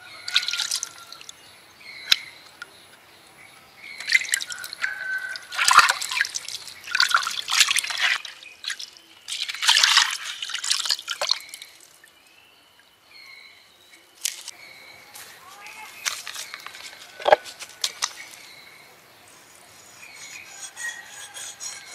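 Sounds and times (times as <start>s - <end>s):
water pouring and dripping: 0.2s - 1.3s, 4.0s - 12.1s
water splashing in a bowl: 0.2s - 1.3s, 4.0s - 12.0s.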